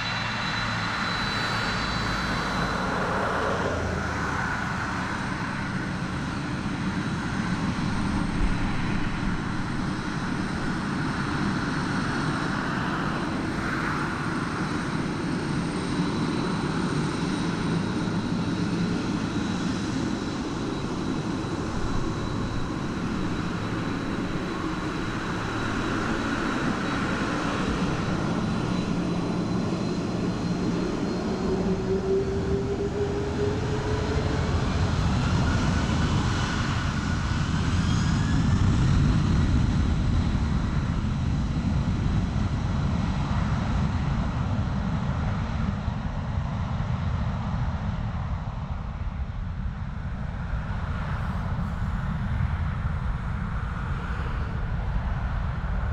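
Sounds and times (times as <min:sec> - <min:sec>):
jet engines running: 0:00.0 - 0:55.9
turbine whine: 0:00.0 - 0:55.9.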